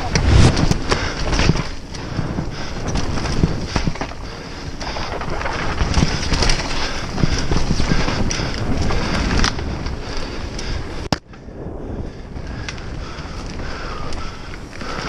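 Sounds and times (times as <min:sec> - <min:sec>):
bike knocks and rattles: 0:00.0 - 0:10.2
tyres rumbling on dirt: 0:00.0 - 0:10.9
wind rushing over microphone: 0:00.0 - 0:15.0.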